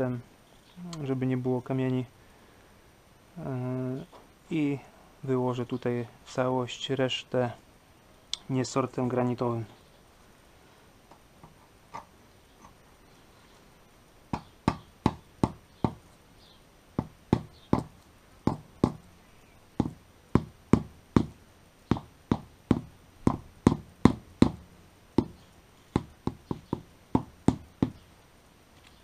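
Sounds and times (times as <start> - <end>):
rubber mallet tapping paving blocks: 14.3 - 16.0, 17.0 - 19.1, 19.8 - 28.0.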